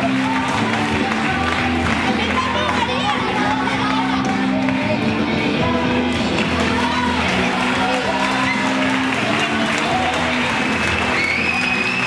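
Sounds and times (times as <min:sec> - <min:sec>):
audience applauding and cheering: 0:00.0 - 0:04.8, 0:06.0 - 0:12.0
recorded music: 0:00.0 - 0:12.0.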